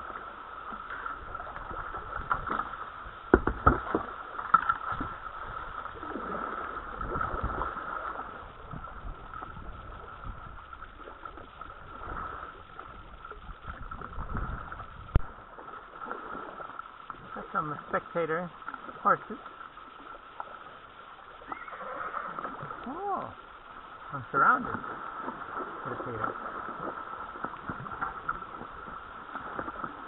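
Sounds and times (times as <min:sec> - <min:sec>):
paddle splashing water: 0:00.0 - 0:30.0
paddle knocking: 0:01.6 - 0:05.7, 0:24.4 - 0:30.0.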